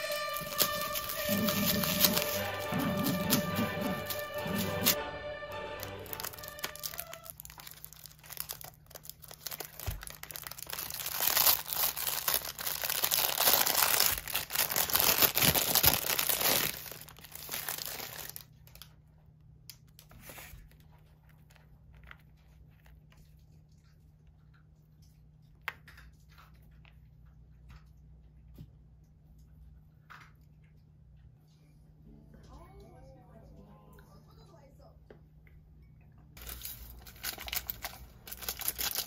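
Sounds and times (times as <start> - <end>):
plastic sleeve crinkling: 0.0 - 5.0, 5.7 - 18.9, 36.4 - 39.0.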